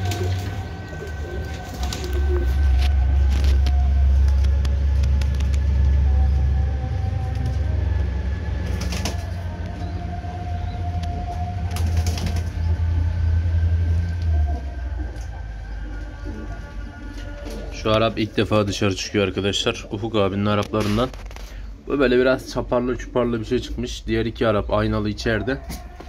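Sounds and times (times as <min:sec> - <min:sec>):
pigeons cooing: 0:00.0 - 0:04.5, 0:14.2 - 0:24.0
pigeons flapping wings: 0:00.0 - 0:05.7, 0:08.7 - 0:09.4, 0:11.7 - 0:12.6
distant call to prayer: 0:00.0 - 0:26.0
heavy low rumble: 0:00.0 - 0:26.0.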